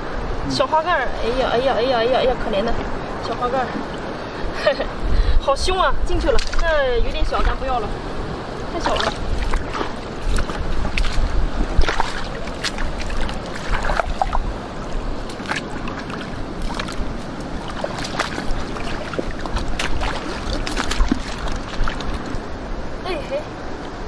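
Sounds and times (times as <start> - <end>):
steady low rumble: 0.0 - 23.7
water sloshing and splashing: 0.8 - 5.0, 5.6 - 23.9.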